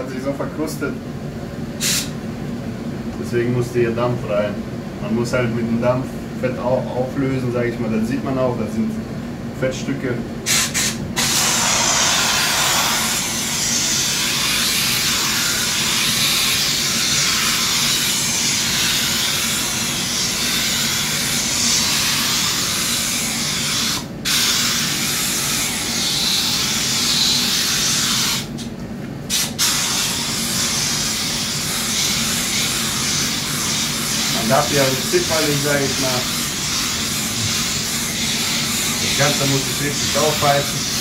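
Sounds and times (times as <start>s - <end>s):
steam cleaner hissing: 1.8s - 2.2s, 10.5s - 28.6s, 29.3s - 41.0s.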